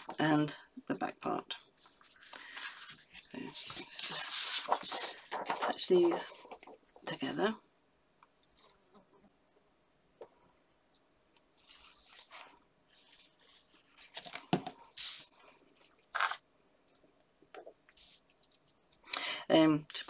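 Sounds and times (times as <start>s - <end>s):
card stock rustling and scraping: 1.8s - 6.8s.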